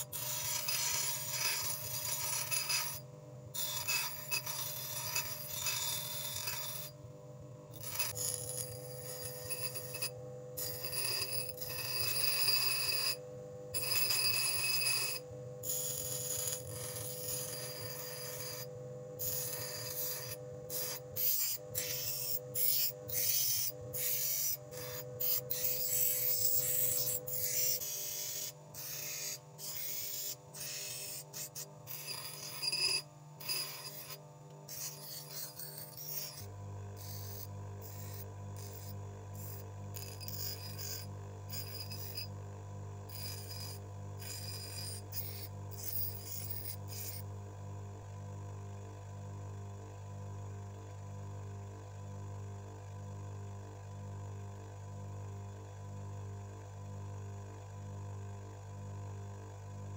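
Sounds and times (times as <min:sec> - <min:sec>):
bench grinder motor hum: 0:00.0 - 0:07.1, 0:07.7 - 0:47.4
steel rod grinding hiss: 0:13.8 - 0:42.3, 0:43.1 - 0:47.2.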